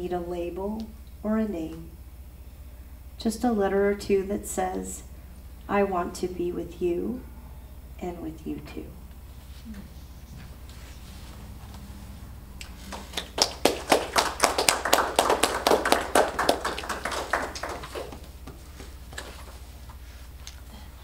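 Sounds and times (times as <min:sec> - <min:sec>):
audience applauding: 0:12.6 - 0:18.6.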